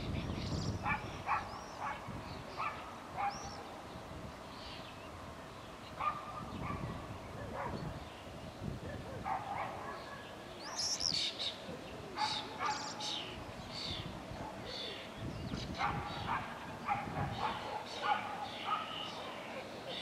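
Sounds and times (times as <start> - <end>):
dog barking: 0.8 - 3.5, 6.0 - 7.9, 9.0 - 10.8, 12.2 - 13.0, 15.8 - 20.0.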